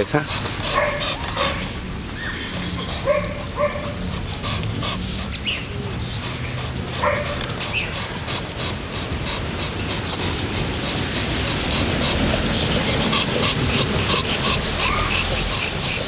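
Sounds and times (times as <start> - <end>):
dog barking: 0.7 - 1.7, 3.0 - 4.0, 7.0 - 7.9.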